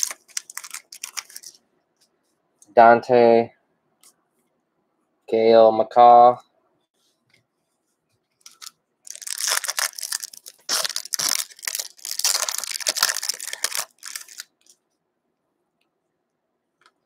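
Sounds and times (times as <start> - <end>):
foil wrapper crinkling: 0.0 - 1.6, 8.4 - 14.8.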